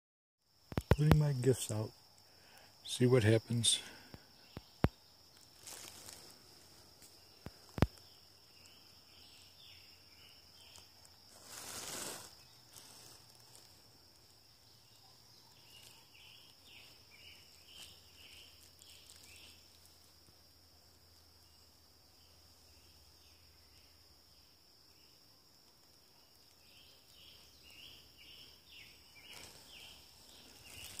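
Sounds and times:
insects droning: 0.4 - 31.0
soft chirps: 0.7 - 24.1, 24.9 - 31.0
brief rustle: 11.3 - 13.7.

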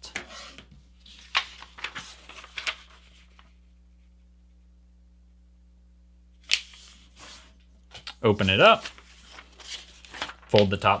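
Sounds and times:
faint steady hum: 0.0 - 11.0
paper rustling as it is folded: 0.2 - 3.6, 6.5 - 11.0.

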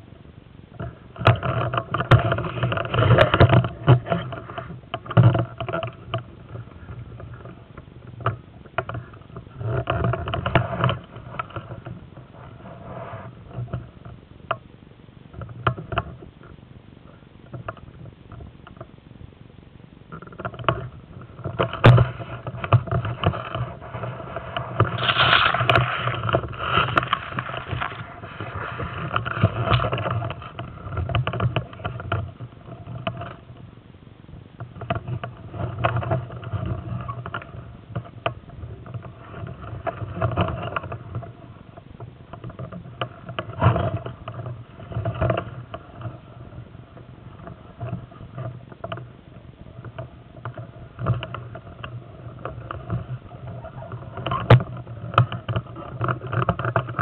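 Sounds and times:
camera handling noise: 24.9 - 28.9.

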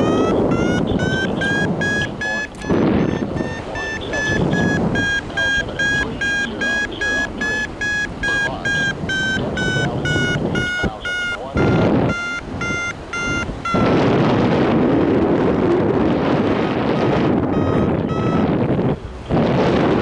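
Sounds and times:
variometer beeping: 0.0 - 14.2, 16.9 - 18.9
wind gusts on microphone: 0.0 - 20.0.

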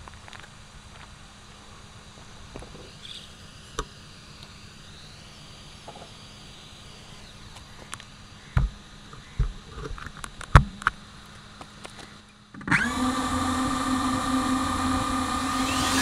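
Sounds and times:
drone motors idle whine: 0.0 - 16.0.

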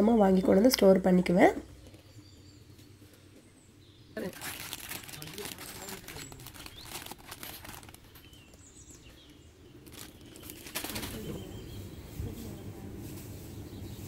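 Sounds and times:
plastic packets rustling: 4.2 - 11.6.

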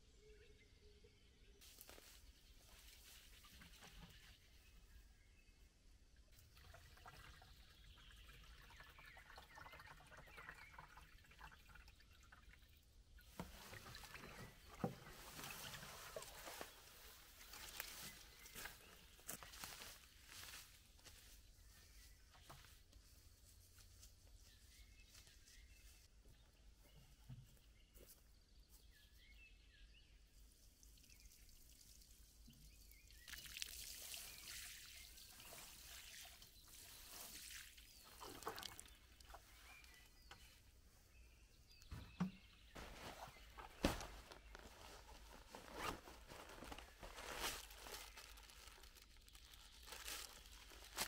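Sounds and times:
water pouring onto soil: 30.6 - 40.3, 46.6 - 51.0.

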